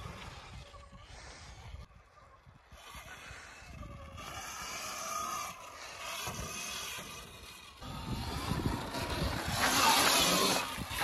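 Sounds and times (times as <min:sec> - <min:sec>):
electric motor whine: 0:02.2 - 0:11.0
tyres rushing over dirt: 0:07.8 - 0:11.0
wind rumble: 0:07.8 - 0:11.0.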